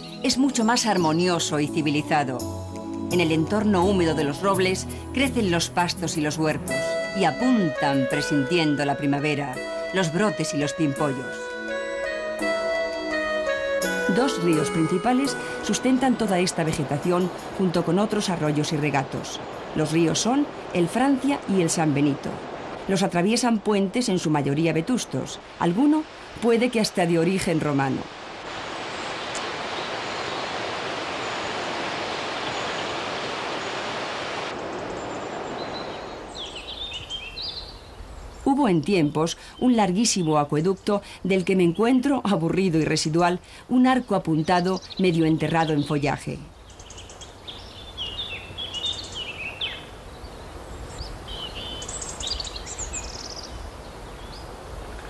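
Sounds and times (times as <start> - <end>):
songbirds chirping and trilling: 0.0 - 2.2, 32.3 - 55.0
river water rushing: 8.3 - 38.4.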